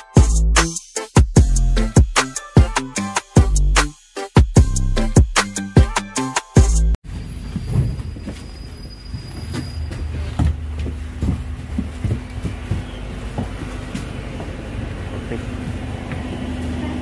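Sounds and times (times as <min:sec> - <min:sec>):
music: 0:00.0 - 0:07.0
bus engine rumble: 0:07.1 - 0:17.0
footsteps on stairs: 0:07.5 - 0:16.5.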